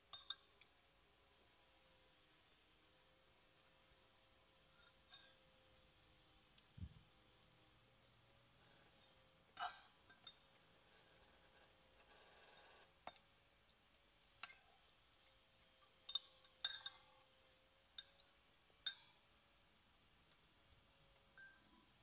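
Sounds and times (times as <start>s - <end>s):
cutlery clinking on ceramic bowl: 0.1s - 0.6s, 9.6s - 10.6s, 14.4s - 14.8s, 16.0s - 17.3s, 18.9s - 19.2s.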